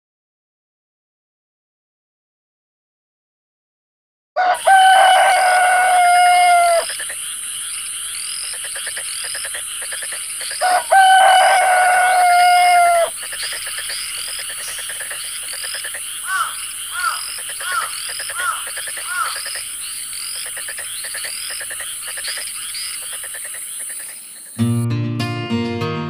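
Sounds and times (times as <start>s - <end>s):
rooster crowing: 4.4s - 7.0s, 10.6s - 13.2s, 16.2s - 19.4s.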